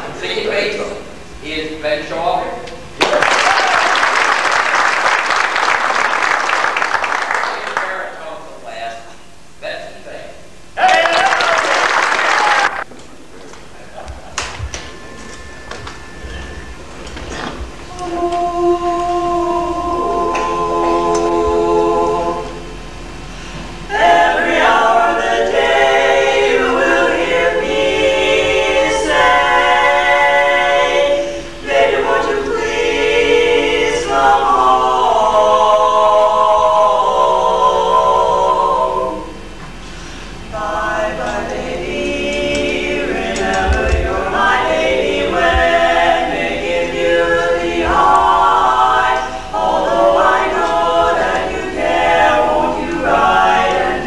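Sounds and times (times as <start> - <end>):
women singing a cappella: 17.5 - 22.9, 23.8 - 39.6, 40.4 - 54.0.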